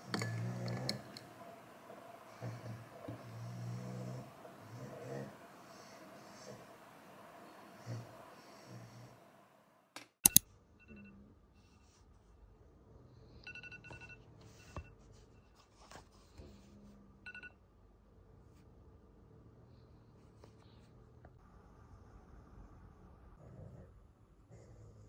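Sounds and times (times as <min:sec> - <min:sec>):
sharp clicks: 0:10.0 - 0:10.4
soft electronic alarm beeps: 0:10.8 - 0:11.8, 0:13.4 - 0:15.5, 0:17.2 - 0:17.6.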